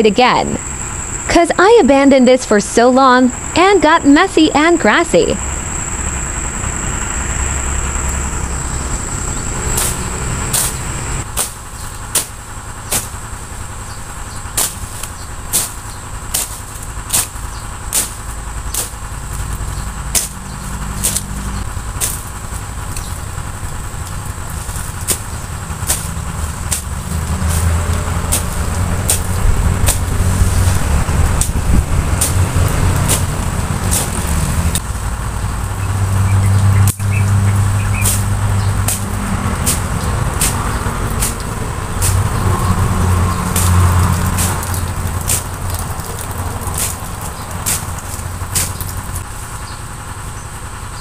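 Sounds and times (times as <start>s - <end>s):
high-pitched whine: 0.0s - 51.0s
low motor rumble: 0.0s - 51.0s
blade snipping grass: 9.6s - 13.6s, 14.3s - 49.4s.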